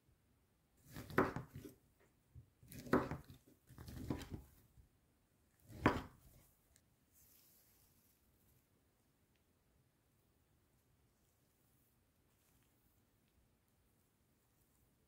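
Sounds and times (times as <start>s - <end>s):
knife cutting onto wooden board: 0.9s - 1.7s, 2.7s - 4.5s, 5.7s - 6.2s.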